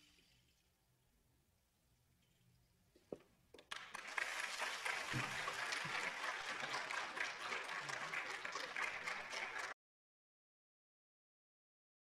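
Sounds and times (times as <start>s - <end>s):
audience applauding: 3.6s - 9.8s.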